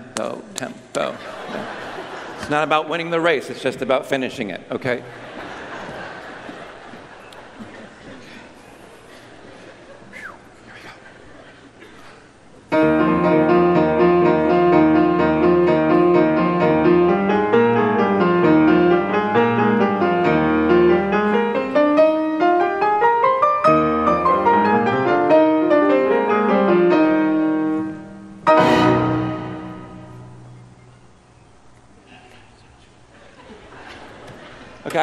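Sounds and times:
grand piano scale runs: 0:12.7 - 0:31.2
loud piano chord: 0:12.7 - 0:31.4.

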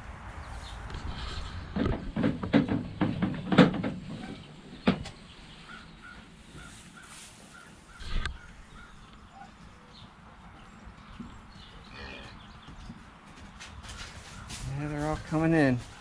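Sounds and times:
sharp knocks and clatters: 0:00.9 - 0:05.2.

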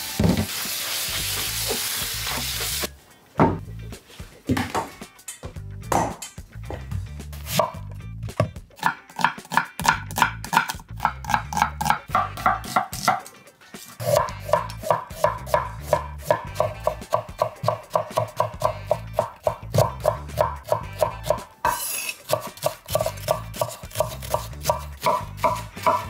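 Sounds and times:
background music with bass: 0:01.1 - 0:08.8, 0:09.7 - 0:12.7, 0:13.3 - 0:21.6, 0:22.8 - 0:26.0
knife chopping on cutting board: 0:05.9 - 0:06.2, 0:08.4 - 0:13.3, 0:14.0 - 0:26.0.

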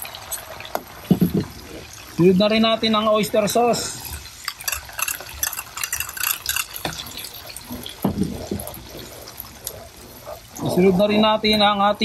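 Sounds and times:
metal ladle scraping glass: 0:04.5 - 0:10.4.

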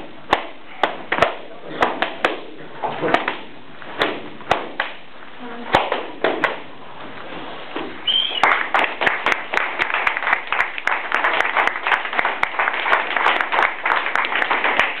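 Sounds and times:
group of people clapping: 0:08.1 - 0:15.0.

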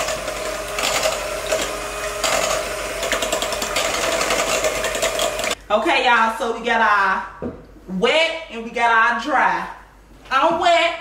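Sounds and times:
electric hand mixer running: 0:00.0 - 0:05.6.

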